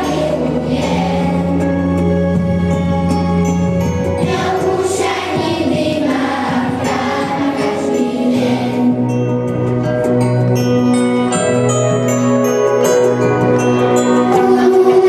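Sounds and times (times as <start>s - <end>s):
children's choir singing: 0.0s - 2.5s, 4.0s - 9.2s, 14.2s - 15.0s
instrumental accompaniment: 0.0s - 15.0s.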